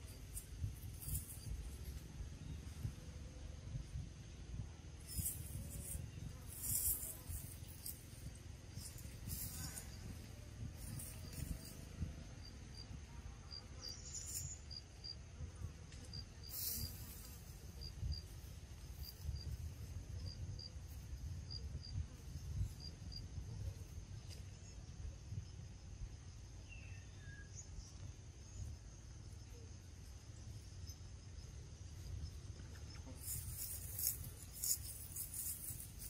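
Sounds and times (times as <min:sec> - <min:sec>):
low uneven rumble: 0:00.0 - 0:26.6
insects droning: 0:00.0 - 0:36.0.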